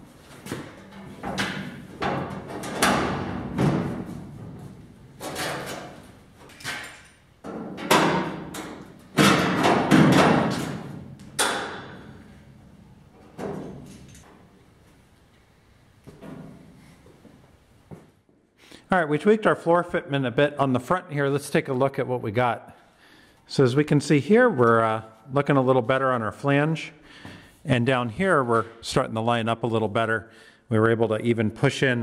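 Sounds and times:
sheet metal thumping and rattling: 0:00.4 - 0:12.4.

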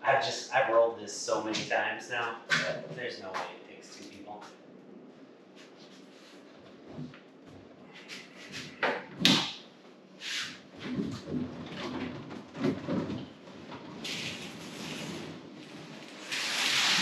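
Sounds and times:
wood scraping and sliding: 0:10.3 - 0:17.0.

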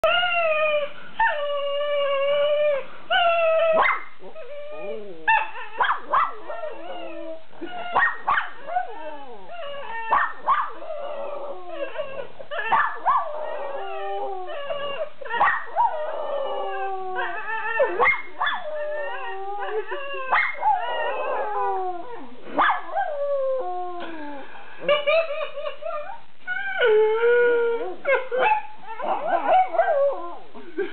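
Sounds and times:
dog howling: 0:03.2 - 0:24.0.

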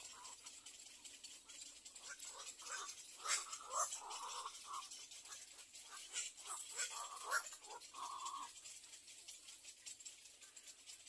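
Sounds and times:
egret chicks crying: 0:02.0 - 0:08.6.

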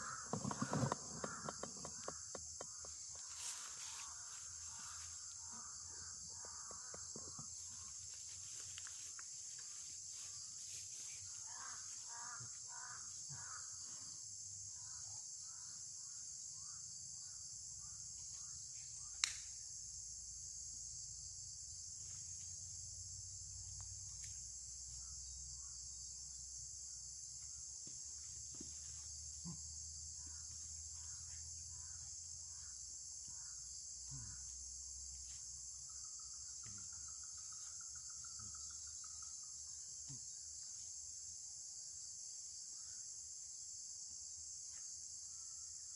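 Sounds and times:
high-pitched insect chorus: 0:00.0 - 0:45.9
rapidly repeated insect calls: 0:00.0 - 0:45.9
sharp click: 0:19.2 - 0:19.5.

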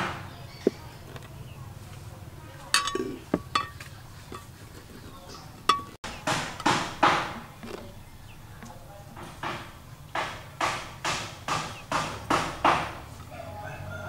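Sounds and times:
cleaver knocking on cutting board: 0:06.1 - 0:07.4.

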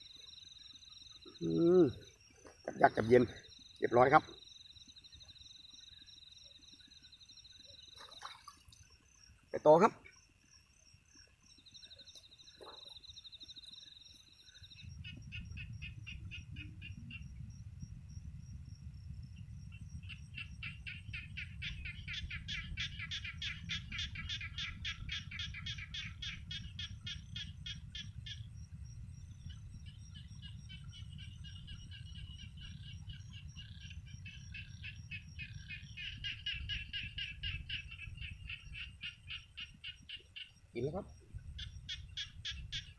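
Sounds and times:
frogs pulsing calls: 0:00.0 - 0:42.9
insects trilling: 0:00.0 - 0:42.9
low rumble: 0:14.7 - 0:22.9, 0:26.5 - 0:35.9.

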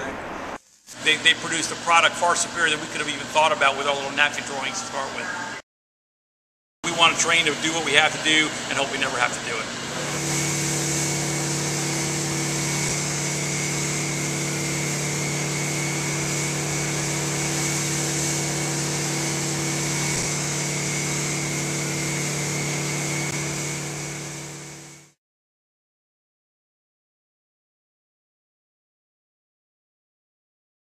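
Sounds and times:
pump engine drone: 0:06.9 - 0:25.2.

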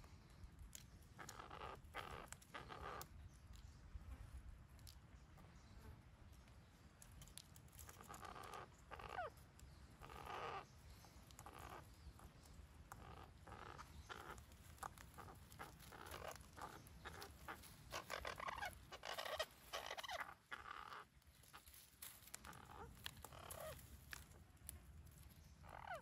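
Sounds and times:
parakeets calling and chattering: 0:01.1 - 0:03.3, 0:07.9 - 0:23.9, 0:25.5 - 0:26.0.

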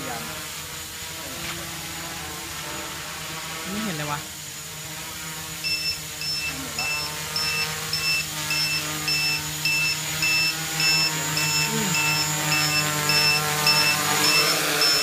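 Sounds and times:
quadcopter motors humming: 0:00.0 - 0:15.0
high electronic buzzer beeps: 0:05.6 - 0:15.0.

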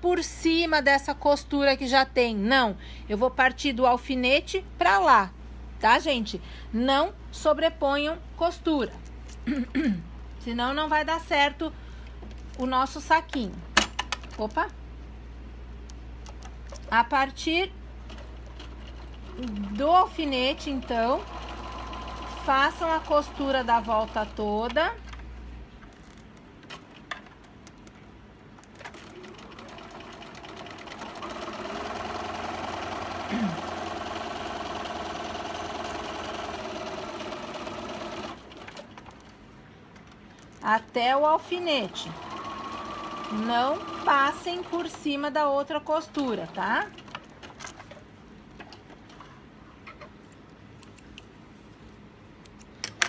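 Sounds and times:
sewing machine motor stitching: 0:20.4 - 0:24.2, 0:42.0 - 0:45.0.

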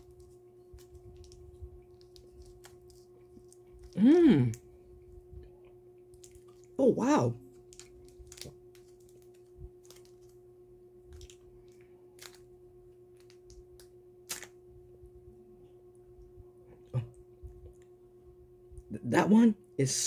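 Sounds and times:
faint hum: 0:00.0 - 0:20.0
chocolate bar snapping: 0:13.2 - 0:14.6.

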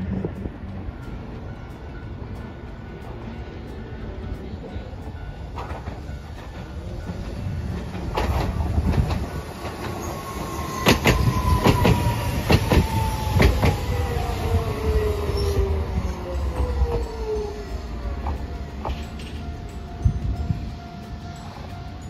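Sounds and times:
tram rumble: 0:00.0 - 0:22.0
tram wheels clicking on rail joints: 0:00.0 - 0:22.0
tram whine falling in pitch: 0:05.5 - 0:22.0.

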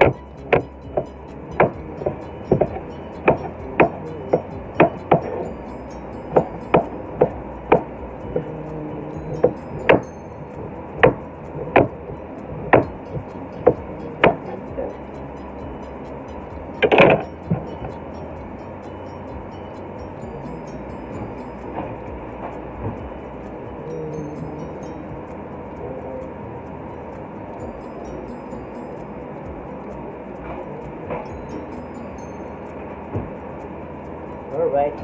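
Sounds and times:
steady background hum: 0:00.0 - 0:35.0.

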